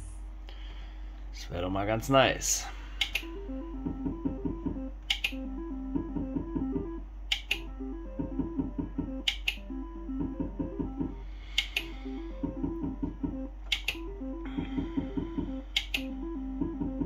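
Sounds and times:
steady low hum: 0:00.0 - 0:17.0
slot machine plucked melody: 0:03.1 - 0:17.0
sharp click: 0:05.1 - 0:05.4, 0:07.3 - 0:07.6, 0:09.3 - 0:09.6.

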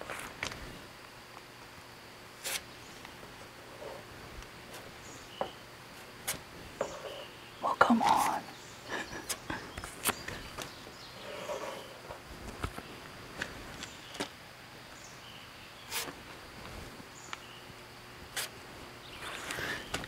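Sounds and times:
faint outdoor background: 0:00.0 - 0:20.0
spreader scraping filler on metal: 0:11.2 - 0:12.0, 0:15.9 - 0:16.1.

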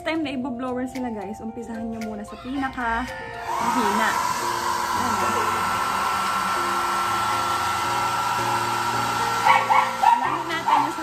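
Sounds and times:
blow dryer air rush and whine: 0:03.4 - 0:11.0.

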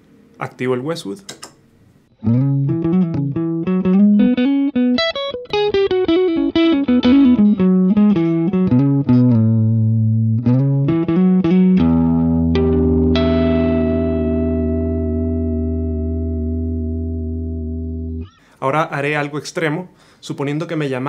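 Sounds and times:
overdriven electric guitar: 0:02.1 - 0:18.5.

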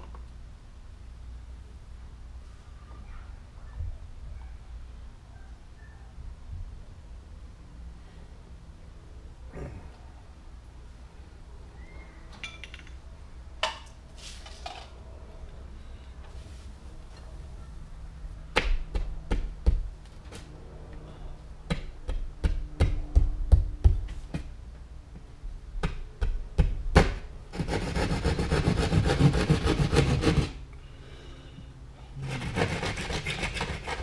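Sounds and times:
sharp taps on drywall: 0:18.6 - 0:19.9, 0:21.7 - 0:24.5, 0:25.8 - 0:27.7
hand saw rasping: 0:27.5 - 0:30.6, 0:32.2 - 0:34.0.

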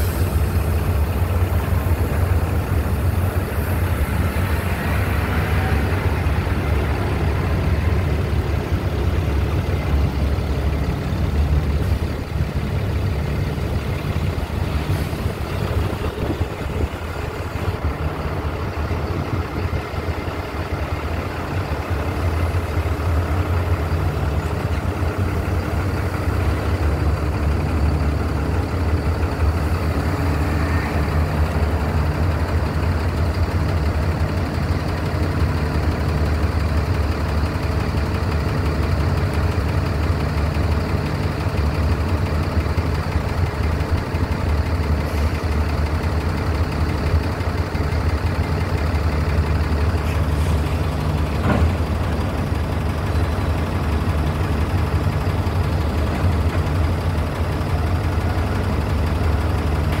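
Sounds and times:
idling engines and machinery drone: 0:00.0 - 1:00.0.

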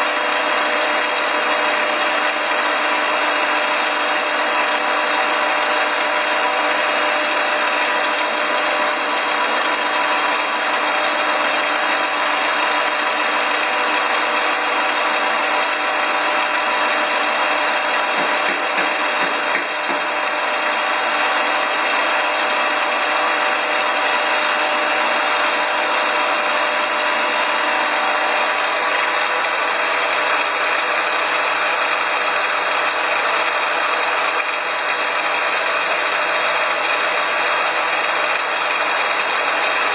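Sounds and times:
machine hum: 0:00.0 - 0:39.9
machinery clattering: 0:05.9 - 0:22.8.

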